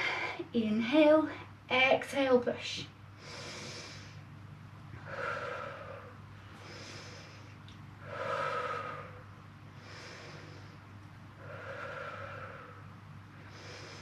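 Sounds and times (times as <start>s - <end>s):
hissy inhale: 3.2s - 4.3s, 5.0s - 14.0s.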